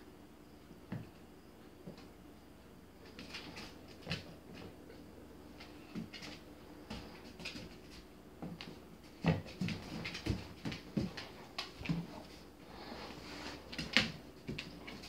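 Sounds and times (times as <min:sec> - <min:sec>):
animals scuffling on hard floor: 0:03.0 - 0:15.0.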